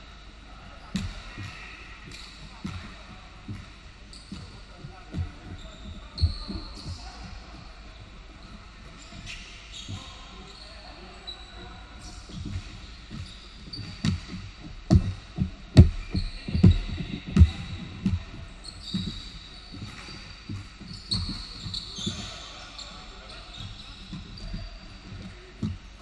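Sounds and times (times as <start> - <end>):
sneakers squeaking: 0.9 - 7.7, 8.3 - 26.0
basketball bouncing on hardwood: 12.3 - 19.2, 19.8 - 22.3.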